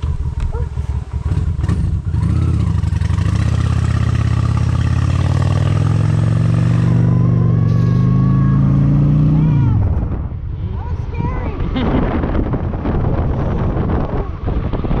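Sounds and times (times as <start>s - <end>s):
wind rush: 6.8s - 15.0s.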